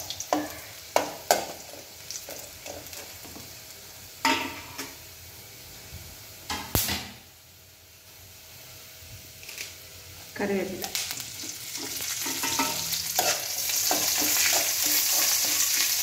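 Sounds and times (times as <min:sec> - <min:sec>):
spices sizzling in hot oil: 0:00.0 - 0:05.6, 0:06.2 - 0:16.0
metal spoon scraping pan: 0:11.7 - 0:16.0.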